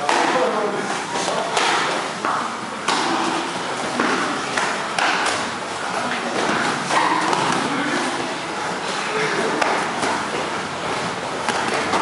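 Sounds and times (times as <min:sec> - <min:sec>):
gym room noise: 0:00.0 - 0:12.0.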